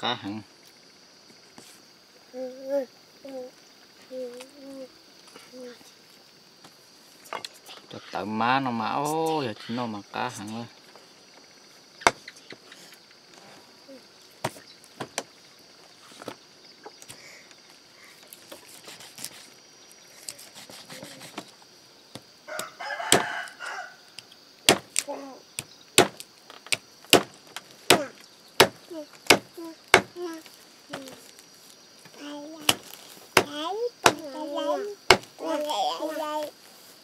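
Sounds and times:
rooster crowing: 22.4 - 24.2
cleaver chopping on wooden block: 22.6 - 23.3, 26.0 - 30.2, 33.4 - 34.2, 35.1 - 35.3.

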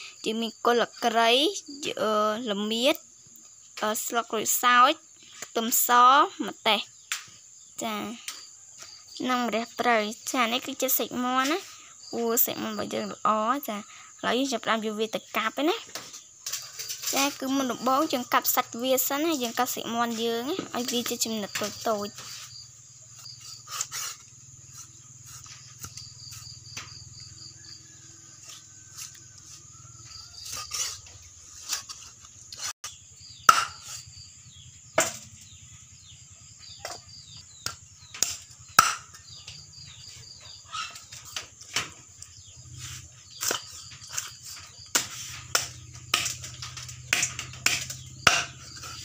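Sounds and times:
insects chirping: 0.0 - 49.0
cleaver chopping on wooden board: 32.8 - 34.0, 35.0 - 35.3, 37.6 - 39.2, 43.4 - 49.0.

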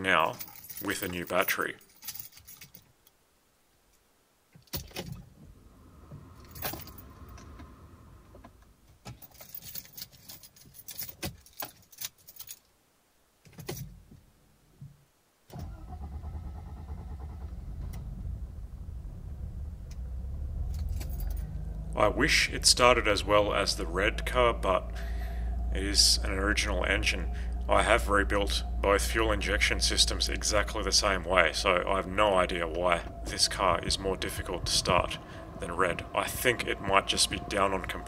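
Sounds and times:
car engine idling: 5.3 - 8.8, 15.7 - 38.0
engine cranking on starter: 15.5 - 23.6.

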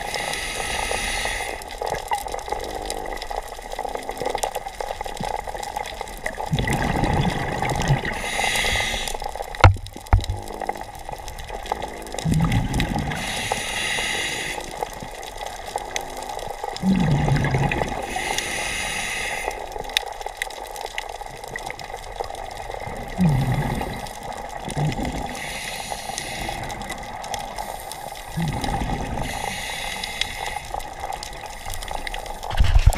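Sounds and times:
regulator inhale hiss: 0.0 - 1.8, 8.1 - 9.4, 13.1 - 14.8, 18.0 - 19.7, 25.3 - 28.4, 29.0 - 30.8
exhaust bubbles gurgling: 0.0 - 18.8, 19.4 - 32.9.

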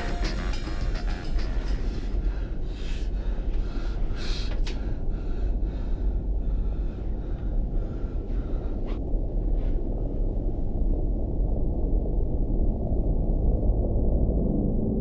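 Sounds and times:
low rumble: 0.0 - 15.0
man gasping breaths: 2.0 - 9.0.

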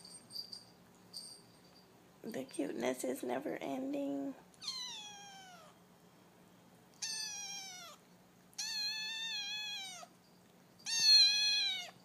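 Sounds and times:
kitten mewing: 4.6 - 5.8, 7.0 - 8.0, 8.6 - 10.1, 10.8 - 12.0.

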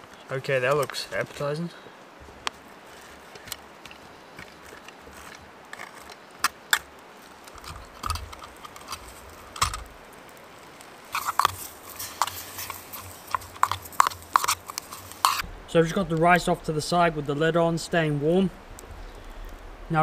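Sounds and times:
campfire crackling: 0.0 - 20.0
metal spoon scraping metal pot: 11.2 - 15.4.

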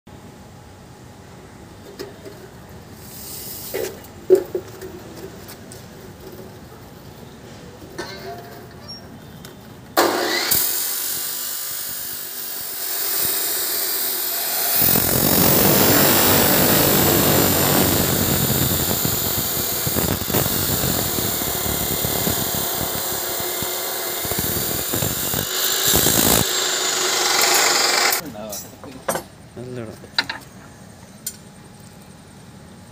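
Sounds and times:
chop saw motor: 10.0 - 28.2
abrasive wheel grinding steel bars: 13.0 - 28.2.

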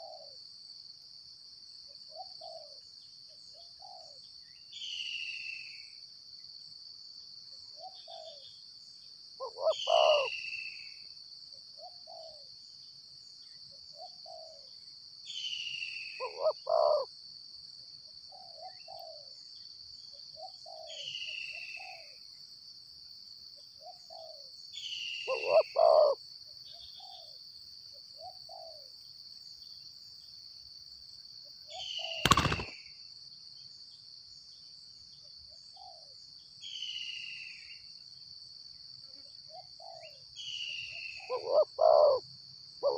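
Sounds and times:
doves cooing: 0.0 - 0.3, 9.4 - 10.3, 16.2 - 17.1, 25.3 - 26.2, 32.0 - 32.7, 41.3 - 42.2
high insect drone: 0.0 - 42.9
sharp knock: 32.2 - 32.7.

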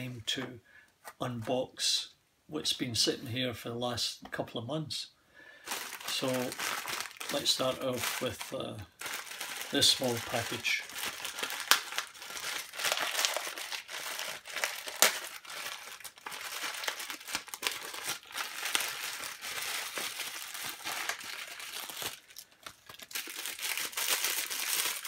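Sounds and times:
plastic bag crinkling: 5.6 - 25.0
plastic package tearing and crinkling: 5.7 - 25.0.

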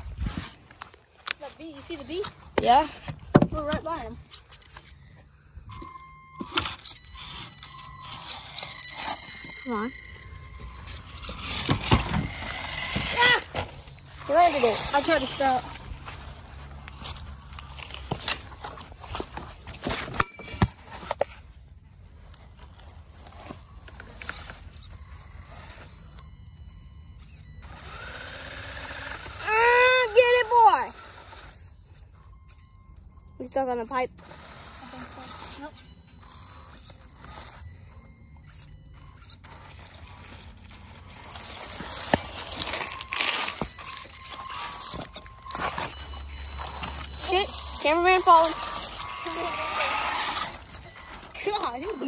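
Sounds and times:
high electric motor whine: 0.0 - 21.4, 22.6 - 52.0
crunching and rustling leaves: 39.4 - 52.0.

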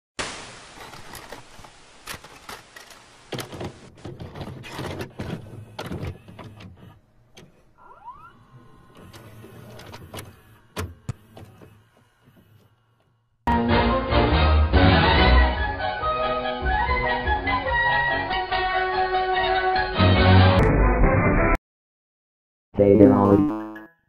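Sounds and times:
tape mechanism clicks and clunks: 2.0 - 7.7, 8.5 - 13.1.

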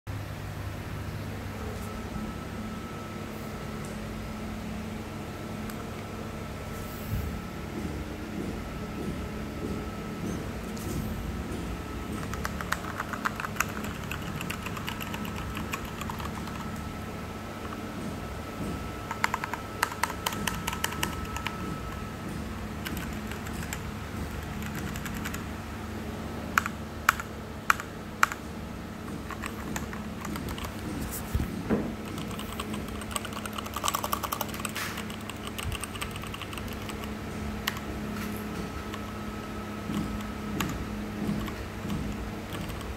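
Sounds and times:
steady low hum: 0.1 - 42.9
mechanical keyboard typing: 12.1 - 16.8, 19.0 - 22.0, 22.8 - 25.5, 26.5 - 28.4, 29.1 - 31.2, 32.0 - 37.9, 38.5 - 42.9.

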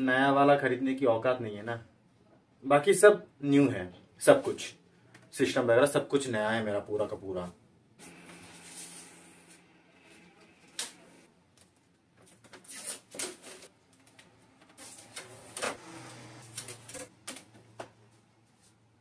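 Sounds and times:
tape peeling with clicks and tears: 10.7 - 15.8.

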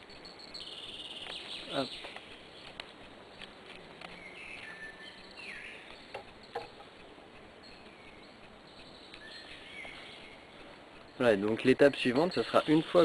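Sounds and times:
birds singing: 0.0 - 13.0
dry vine clicking and crackling: 1.2 - 4.8.

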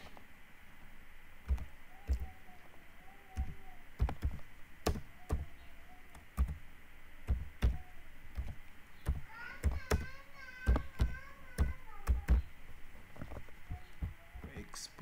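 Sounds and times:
keyboard typing clicks: 1.4 - 2.3, 3.4 - 5.4, 6.1 - 6.6, 7.3 - 12.5.

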